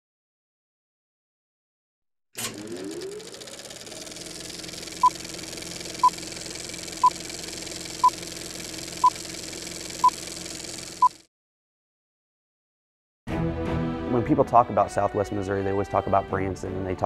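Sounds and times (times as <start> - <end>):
film projector whir: 2.4 - 11.3.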